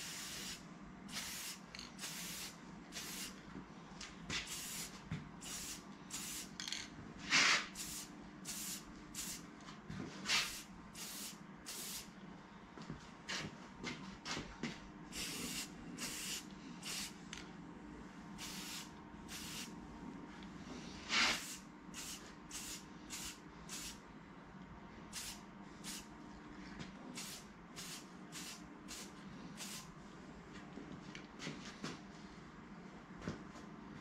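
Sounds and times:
spray can hissing bursts: 0:00.0 - 0:03.3, 0:10.4 - 0:12.1, 0:18.4 - 0:19.7.

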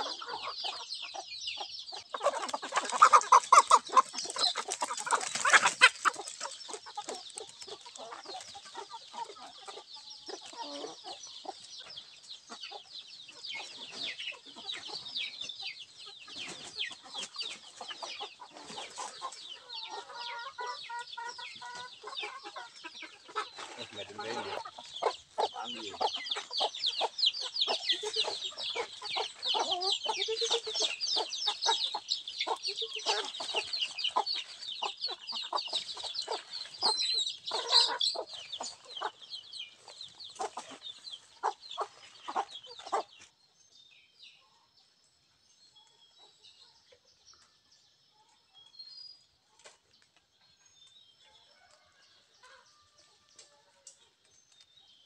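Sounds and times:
hens clucking: 0:00.0 - 0:43.4
chicks peeping: 0:00.0 - 0:55.0.

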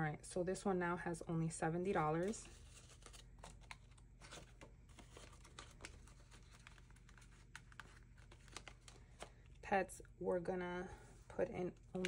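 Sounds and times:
paper banknotes rustling: 0:02.2 - 0:09.6.

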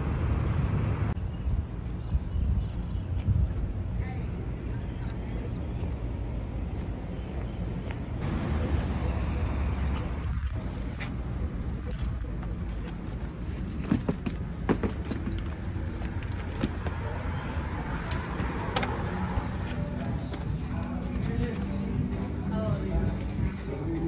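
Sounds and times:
street traffic rumble: 0:00.0 - 0:24.0
luggage clicks and knocks: 0:13.5 - 0:17.0.

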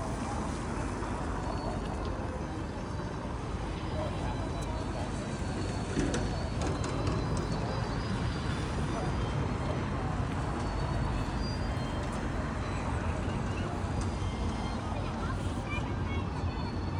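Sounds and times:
faint indistinct voices: 0:00.0 - 0:16.9
road traffic rumble: 0:00.0 - 0:16.9.

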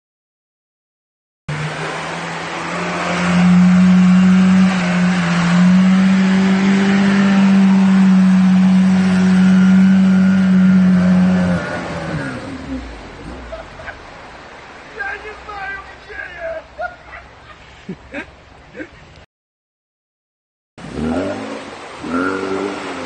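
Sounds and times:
engine at high revs: 0:01.5 - 0:14.7, 0:20.8 - 0:23.0.

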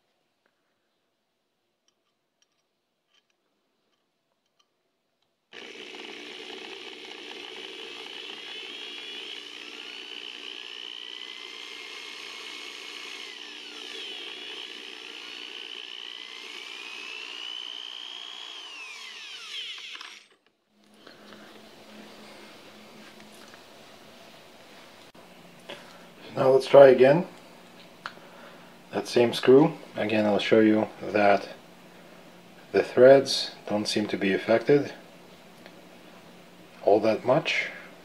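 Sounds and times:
cordless drill whining: 0:05.5 - 0:21.6
file filing screw head: 0:05.6 - 0:20.4.

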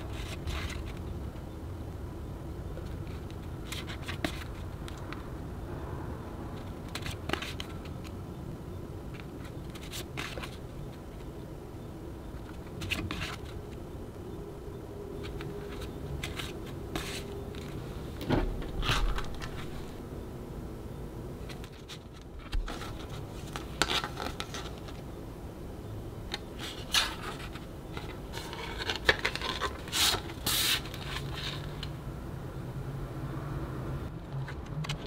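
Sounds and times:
cards scraping and rustling: 0:00.0 - 0:01.1, 0:02.8 - 0:05.2, 0:06.6 - 0:08.2, 0:09.1 - 0:11.3, 0:12.4 - 0:13.8, 0:15.2 - 0:17.9, 0:18.7 - 0:20.0, 0:21.4 - 0:25.1, 0:26.3 - 0:31.9.

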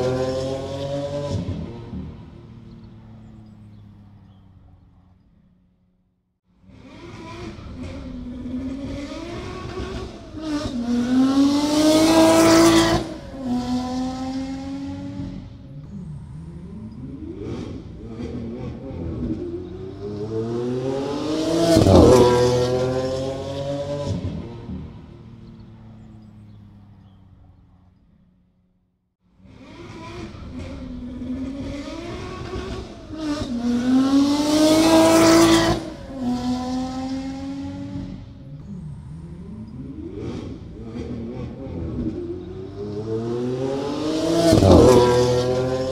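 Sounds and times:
car engine accelerating: 0:00.0 - 0:05.7, 0:06.6 - 0:28.3, 0:29.4 - 0:45.9.

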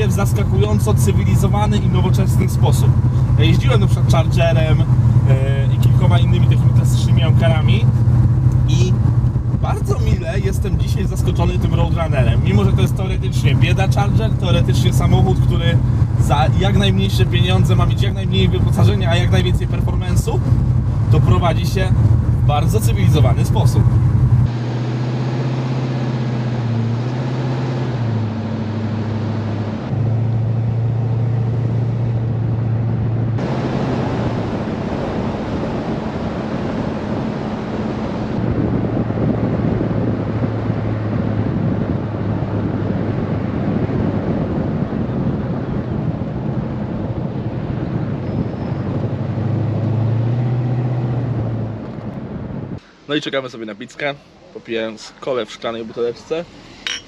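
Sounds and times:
car engine cruising: 0:00.0 - 0:57.0
wind and road noise: 0:00.0 - 0:57.0.

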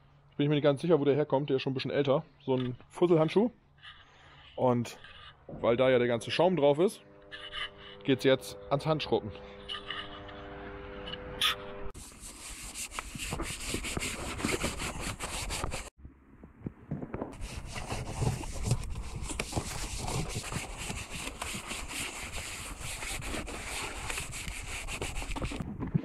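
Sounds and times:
steady hum: 0:03.8 - 0:12.1
wash mitt scrubbing wet plastic: 0:17.4 - 0:25.6.

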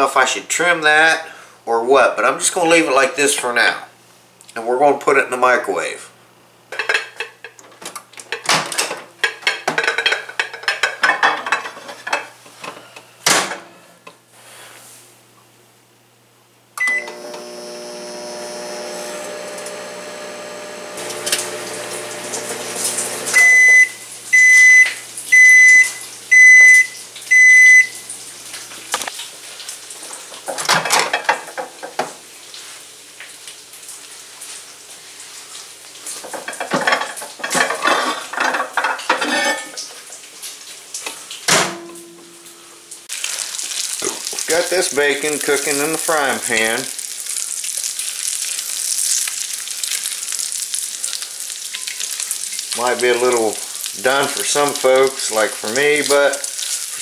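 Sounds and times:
dishes clattering: 0:06.7 - 0:13.7, 0:30.5 - 0:32.1, 0:36.2 - 0:39.9
microwave oven humming: 0:16.4 - 0:28.8
loud microwave beeps: 0:16.8 - 0:17.4, 0:23.4 - 0:28.0
keypad beep: 0:23.4 - 0:27.9.

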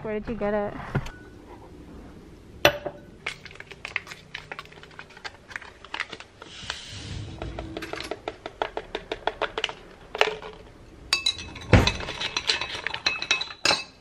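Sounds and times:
spoon clinking in glass jar: 0:11.1 - 0:14.0.

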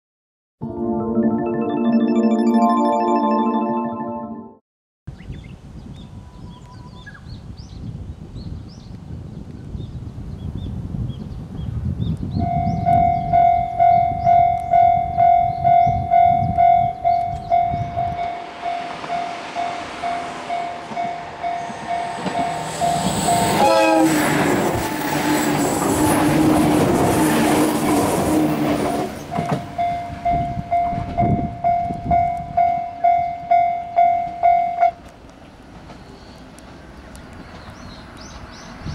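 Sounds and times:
level crossing bell ringing: 0:00.6 - 0:04.6
diesel railcar passing: 0:13.1 - 0:38.9.

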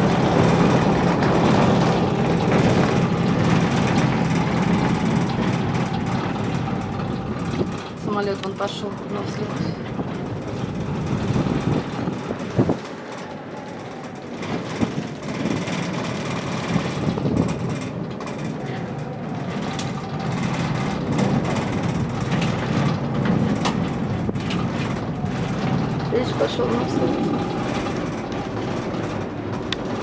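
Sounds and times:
gondola cabin rumble and rattle: 0:00.0 - 0:30.0
sharp clicks and knocks: 0:19.3 - 0:30.0.

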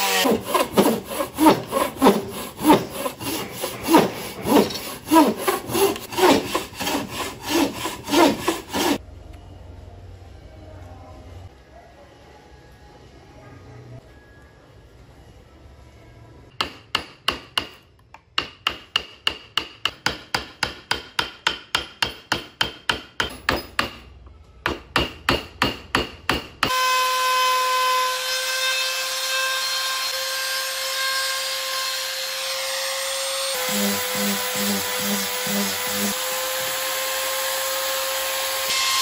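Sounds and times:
wooden mallet striking: 0:16.5 - 0:26.7.

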